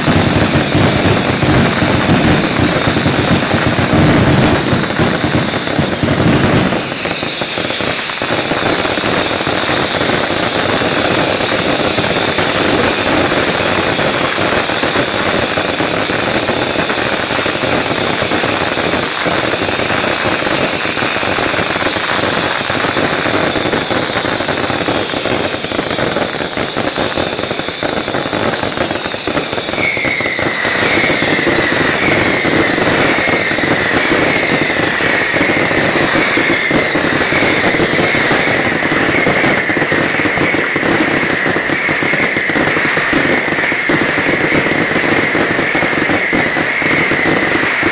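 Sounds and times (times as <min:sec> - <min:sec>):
falling firework whistles: 0:00.0 - 0:47.9
fireworks crackling and banging: 0:00.0 - 0:47.9
steady shrill whistle: 0:00.4 - 0:18.1, 0:23.4 - 0:47.9.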